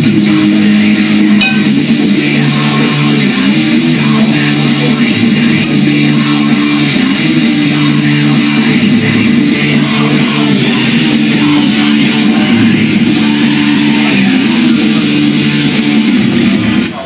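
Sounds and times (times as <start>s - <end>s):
electric guitar held notes: 1.3s - 1.9s.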